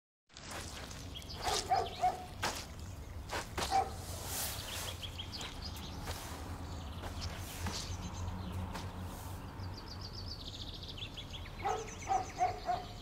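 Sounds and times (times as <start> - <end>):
footsteps squelching in wet concrete: 0.3 - 9.3
high bird chirps: 0.8 - 13.0.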